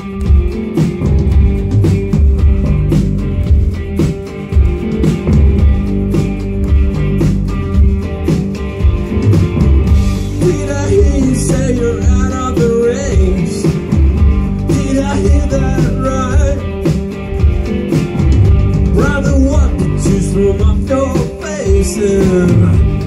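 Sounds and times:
drums: 0.0 - 23.0
electric guitars: 0.0 - 23.0
person singing: 10.4 - 14.0, 14.6 - 16.8, 18.9 - 23.0.

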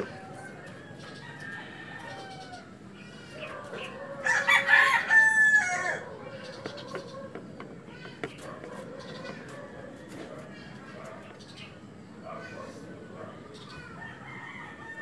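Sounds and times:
rooster crowing: 0.0 - 6.6, 13.9 - 15.0
fainter rooster calls: 0.1 - 7.2.

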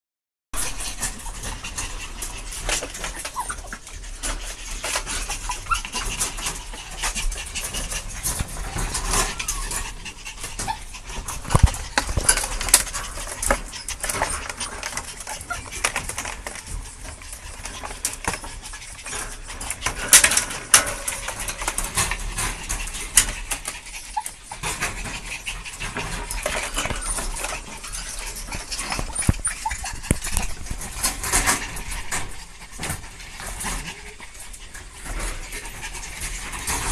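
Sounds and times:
paws scratching and rattling wire cage: 0.6 - 36.9
small dog whimpers: 2.8 - 4.1, 5.1 - 17.2, 24.0 - 32.3.

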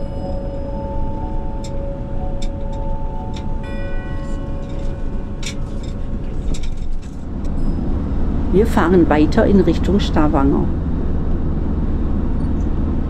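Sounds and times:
bell-like chime: 0.0 - 8.5
soft background music: 0.0 - 10.8.

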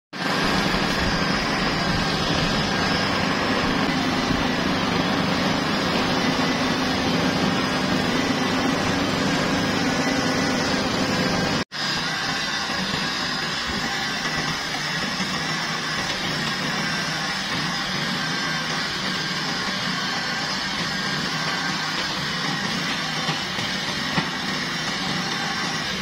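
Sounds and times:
crane engine humming: 0.2 - 11.6.

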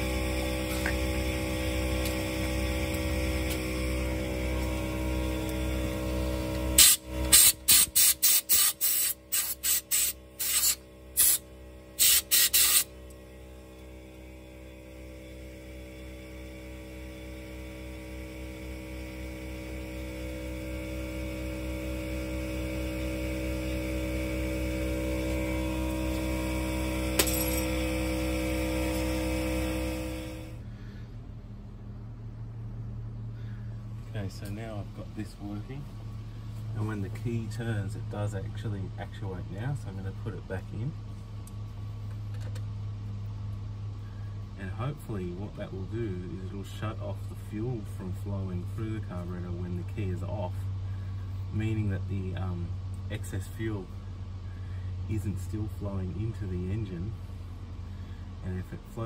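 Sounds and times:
air compressor humming: 0.0 - 59.0
air blow gun blasts: 6.8 - 11.4, 12.0 - 12.9.

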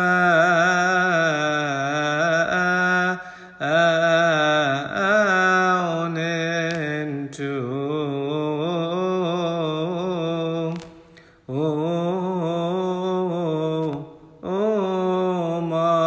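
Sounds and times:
voice chanting a hymn: 0.0 - 16.0.

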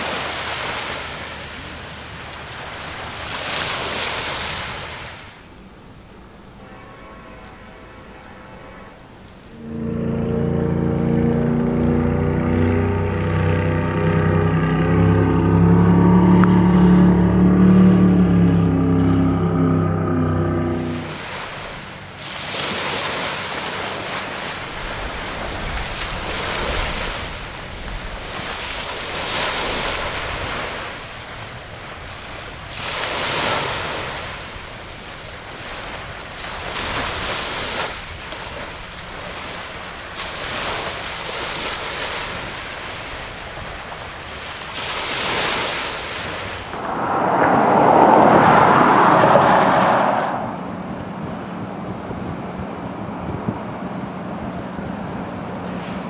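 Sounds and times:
wind on microphone: 46.2 - 55.2
loud rushing noise: 46.4 - 51.2.

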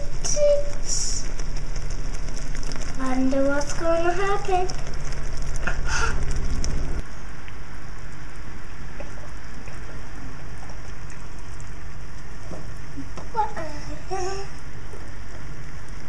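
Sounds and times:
sugar syrup boiling: 0.0 - 16.0.

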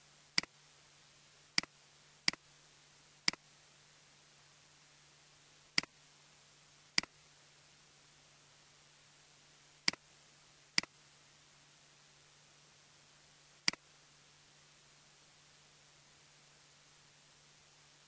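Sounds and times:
faint steady hum and hiss: 0.0 - 18.0.

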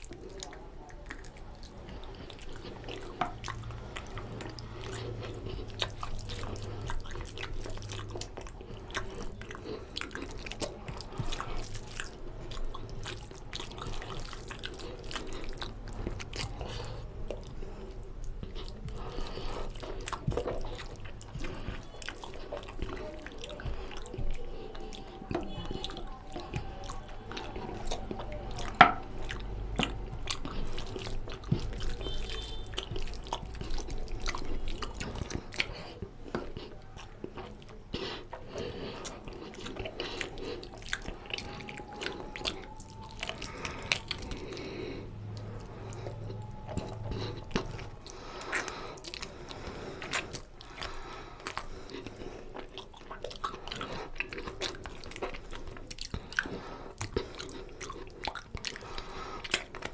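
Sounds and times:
chewing and mouth noises: 0.0 - 59.9
hand mixing rice and curry: 0.0 - 59.9.

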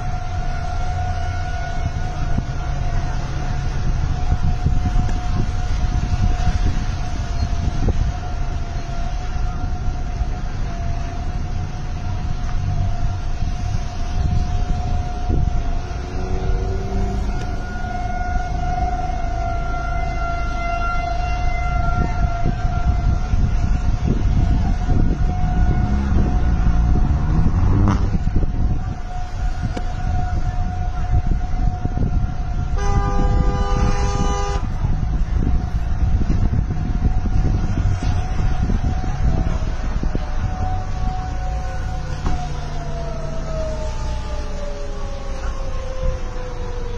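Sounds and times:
warning siren wailing: 0.0 - 46.9
wind buffeting microphone: 0.0 - 46.9
car horn: 32.7 - 34.9.

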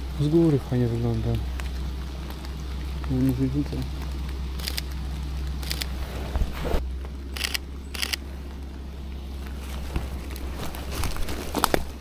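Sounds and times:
steady low rumble: 0.0 - 12.0
camera shutter clicks: 7.4 - 8.2.

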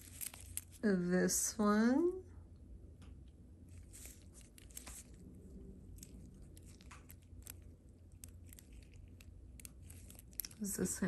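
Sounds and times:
metal bracelet clicks and rustles: 0.0 - 0.8, 3.7 - 11.0.

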